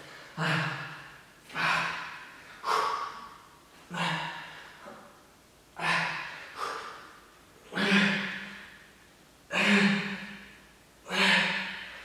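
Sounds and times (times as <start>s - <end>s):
man exhaling forcefully: 0.0s - 4.9s, 5.8s - 7.2s.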